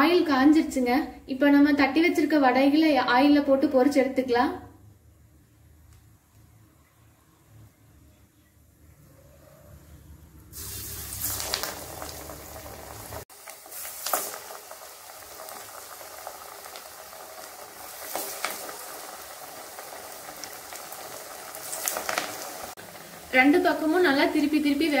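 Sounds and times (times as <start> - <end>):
fritters sizzling in hot oil: 10.5 - 25.0.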